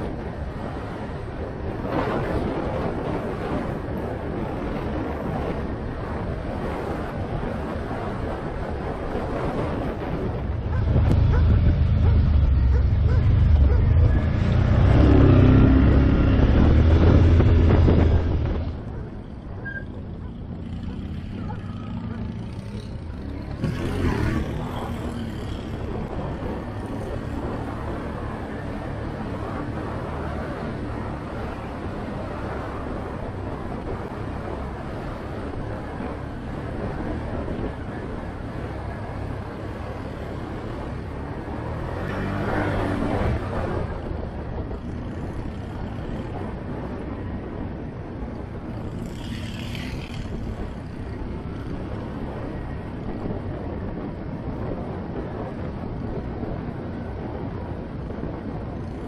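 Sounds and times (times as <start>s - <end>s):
quad engine droning: 0.0s - 59.0s
quad engine running: 10.6s - 19.2s, 20.1s - 31.6s.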